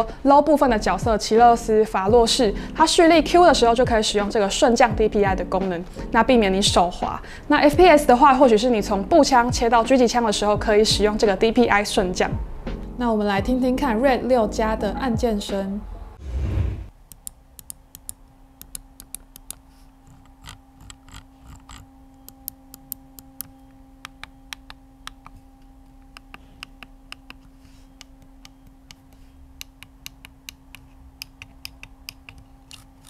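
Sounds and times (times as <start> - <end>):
faint steady hum: 17.0 - 33.0.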